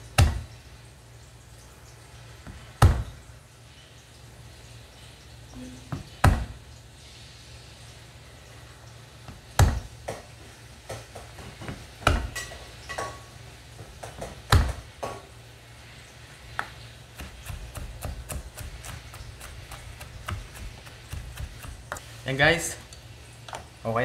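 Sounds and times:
knife chopping on wooden board: 0.2 - 0.5, 2.8 - 3.1, 5.9 - 6.6, 9.3 - 10.2, 10.9 - 12.4, 14.0 - 14.8, 17.1 - 22.0.

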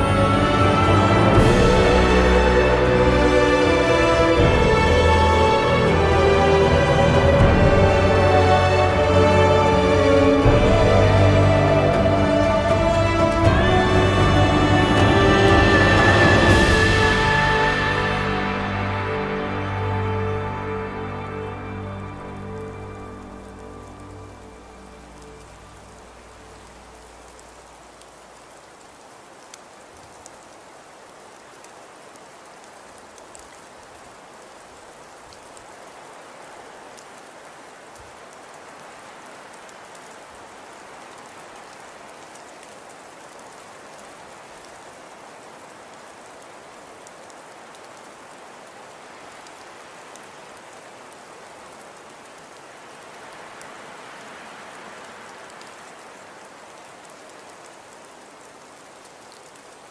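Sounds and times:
rain hissing: 0.0 - 59.9
raindrop ticks: 22.2 - 59.9.

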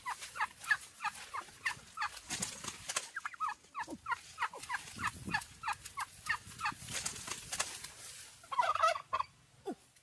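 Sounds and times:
turkey calling: 0.0 - 2.2, 3.1 - 6.8, 8.4 - 9.4.

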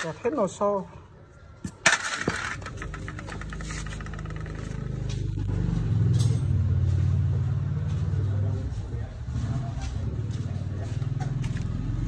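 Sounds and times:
machine motor rattling: 1.9 - 5.5.

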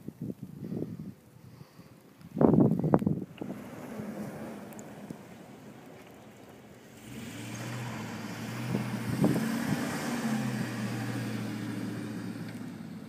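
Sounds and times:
vehicle engine humming: 2.9 - 13.0
wind hiss: 6.9 - 12.4.

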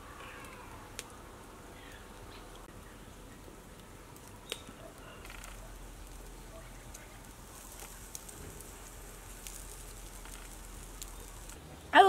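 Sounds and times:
meat sizzling on grill: 3.6 - 11.6.

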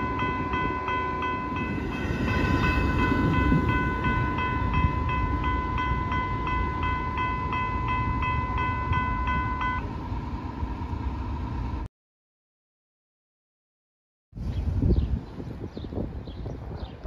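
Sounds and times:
crossing warning bells ringing: 0.0 - 11.5
train rumble: 0.0 - 11.9.

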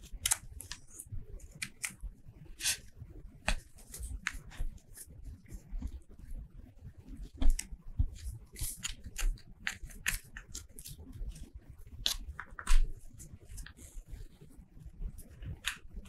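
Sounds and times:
scissors snipping paper: 0.0 - 5.0, 7.3 - 12.9, 15.2 - 16.0.

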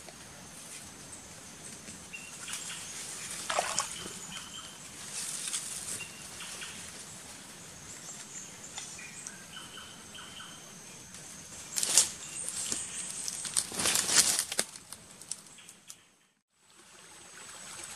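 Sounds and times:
boots squelching in wet mud: 3.4 - 4.6.

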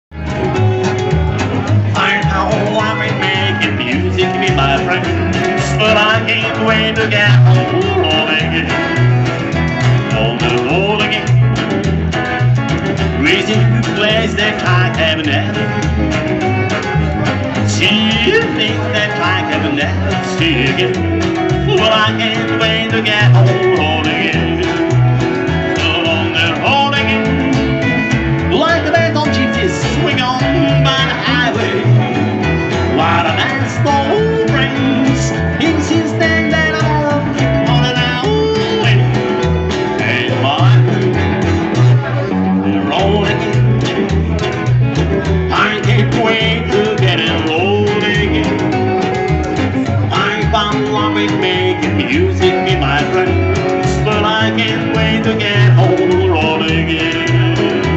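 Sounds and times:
upright double bass: 0.0 - 57.9
electric guitar: 0.1 - 57.9
strummed acoustic guitar: 0.1 - 57.9
man singing: 1.3 - 57.9.

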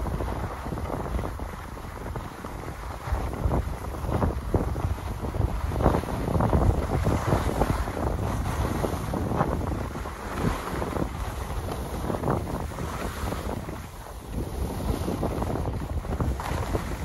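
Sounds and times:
skis scraping on packed snow: 0.0 - 17.0
wind buffeting microphone: 0.0 - 17.0.

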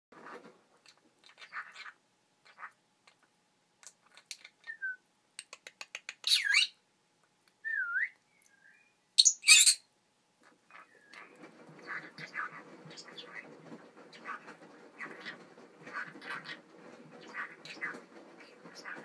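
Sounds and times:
small pets chirping and squeaking: 0.8 - 4.7, 5.4 - 6.8, 9.2 - 9.8, 10.7 - 19.0.

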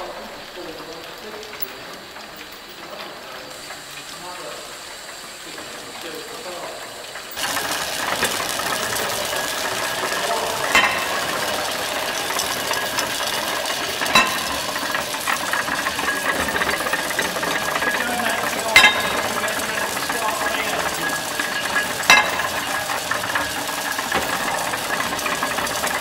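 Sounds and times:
steam engine hissing: 0.0 - 26.0
fast metallic clatter: 0.6 - 26.0
loud engine knocks: 7.3 - 26.0.

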